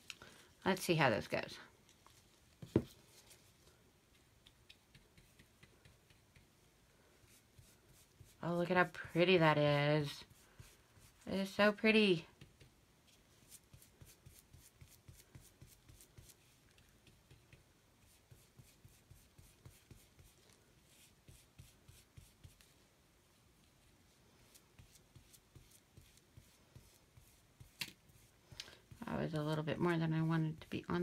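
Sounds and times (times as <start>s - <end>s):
paintbrush scratching on fabric: 7.2s - 11.4s, 13.1s - 22.8s, 24.4s - 31.0s.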